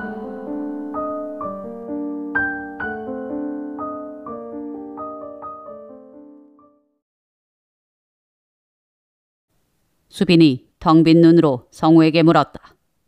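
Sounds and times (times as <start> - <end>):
soft piano music: 0.0 - 7.0.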